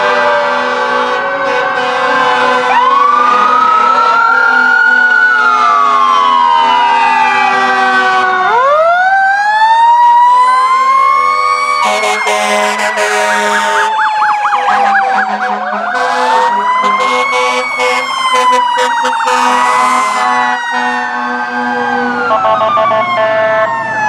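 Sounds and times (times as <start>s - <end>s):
sirens wailing: 0.0s - 24.0s
fast yelping siren warble: 12.0s - 24.0s.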